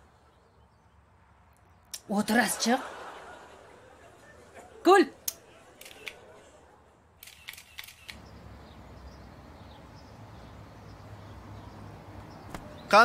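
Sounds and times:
phone camera shutter clicks: 5.8s - 6.2s, 7.2s - 8.2s.

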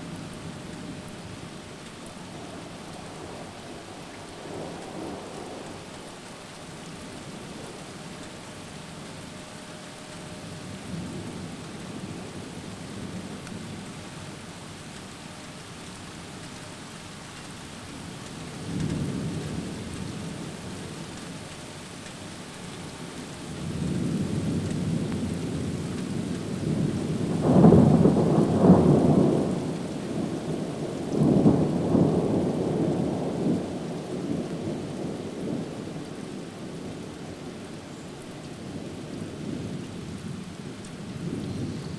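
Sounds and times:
steady rain: 0.0s - 41.9s
thunder rumbling: 23.5s - 37.6s.

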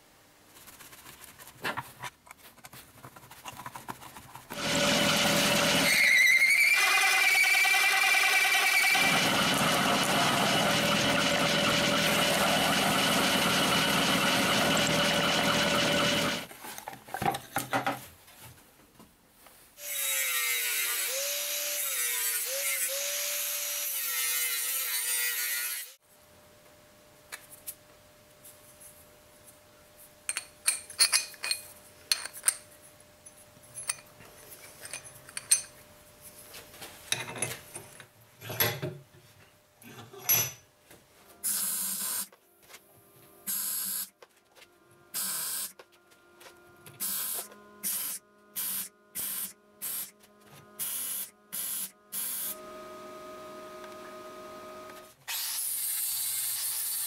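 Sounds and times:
drill press cutting steel: 4.6s - 16.5s.

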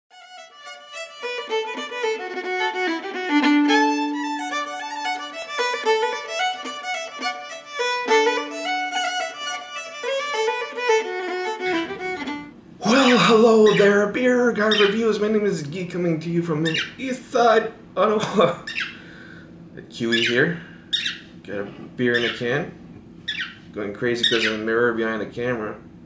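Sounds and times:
fiddle playing a fast reel: 0.1s - 12.5s.

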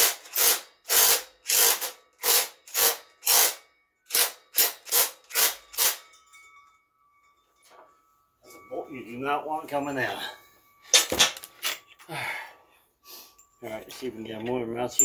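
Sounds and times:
impact wrench bursts: 0.0s - 6.0s.

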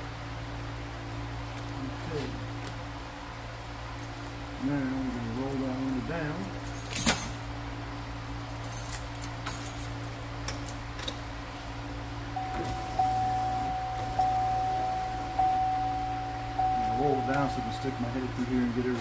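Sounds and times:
high electronic chime: 12.4s - 18.4s.

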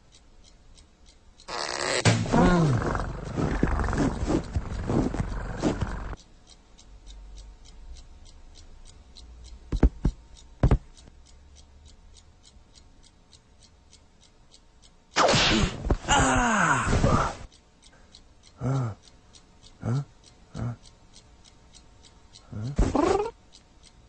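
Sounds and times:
clock ticking: 0.0s - 24.0s
sharp thumps: 1.5s - 6.2s, 9.7s - 10.9s, 15.2s - 16.1s
cartoon cat meowing and growling: 22.8s - 23.3s.

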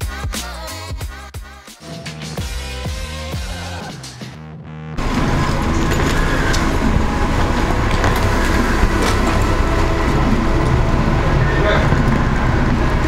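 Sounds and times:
background music: 0.0s - 13.0s
outdoor noise with low rumble: 5.0s - 13.0s.

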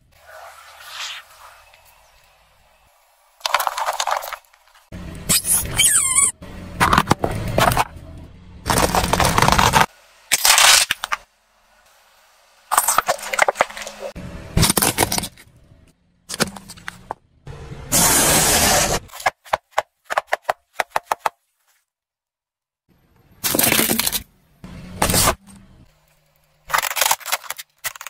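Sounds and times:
tyre crushing plastic: 3.4s - 4.8s, 8.7s - 11.2s, 23.4s - 24.3s, 26.7s - 28.0s.

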